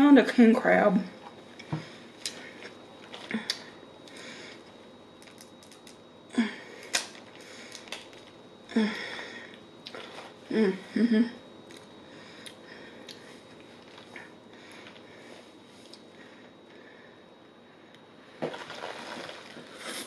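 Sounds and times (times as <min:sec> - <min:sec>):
crab shells cracking: 0:05.2 - 0:06.0.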